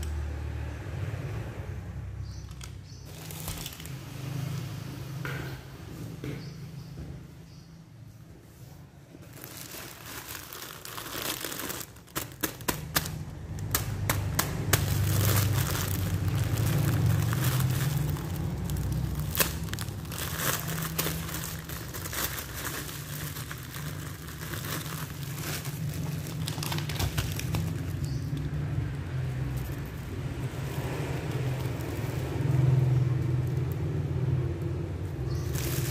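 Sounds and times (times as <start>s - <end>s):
plastic snack bag crinkling: 3.0s - 4.1s, 9.2s - 34.4s, 35.2s - 35.9s.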